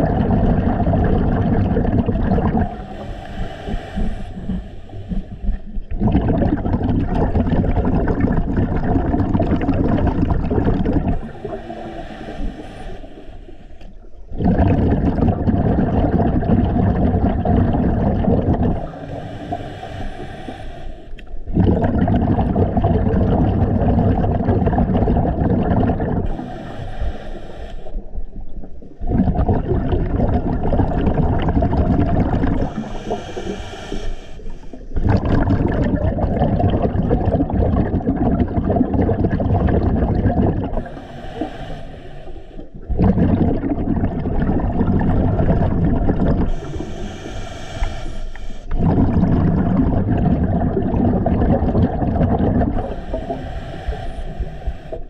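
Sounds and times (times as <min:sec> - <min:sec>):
bubbling underwater exhalations: 0:00.0 - 0:12.8, 0:14.0 - 0:20.6, 0:21.2 - 0:27.0, 0:28.0 - 0:41.8, 0:42.6 - 0:55.0
hissing regulator inhalations: 0:02.7 - 0:05.8, 0:11.1 - 0:14.2, 0:18.7 - 0:21.5, 0:26.2 - 0:28.2, 0:32.5 - 0:35.0, 0:40.7 - 0:42.9, 0:46.4 - 0:49.1, 0:52.6 - 0:55.0.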